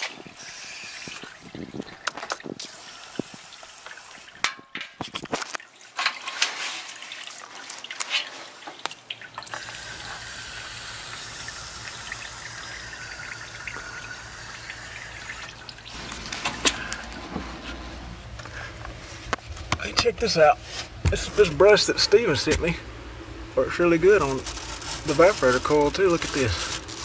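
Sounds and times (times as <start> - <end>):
water dripping: 5.4 - 16.3.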